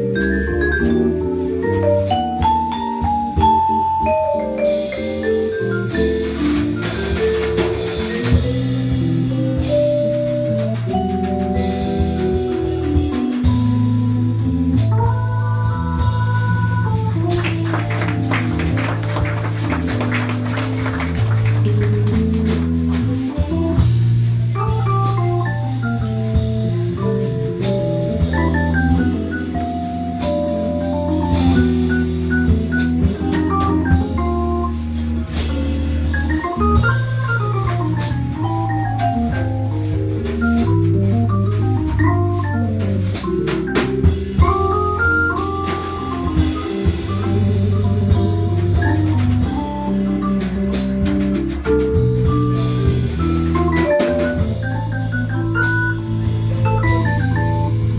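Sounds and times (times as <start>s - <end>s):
drum kit: 0.0s - 57.9s
electric keyboard bass and chords: 0.0s - 57.9s
vibraphone note runs: 52.6s - 57.9s.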